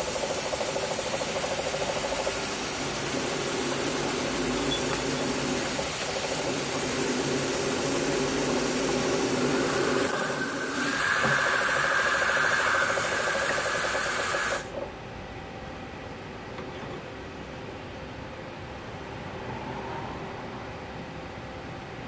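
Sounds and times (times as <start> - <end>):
drill press motor hum: 0.0 - 14.8
drill cutting into metal: 1.8 - 14.7.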